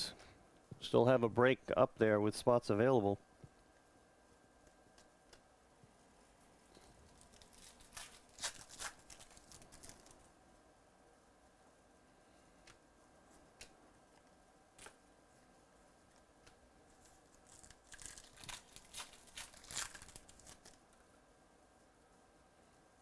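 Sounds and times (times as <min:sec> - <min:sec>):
foil wrapper tearing and crinkling: 0:07.1 - 0:10.2, 0:17.0 - 0:20.8.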